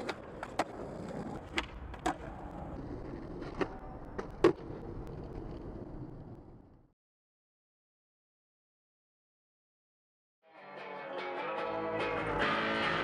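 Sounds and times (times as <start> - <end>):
skateboard clacks: 0.0 - 6.6
skateboard wheels rumbling on pavement: 0.0 - 6.9.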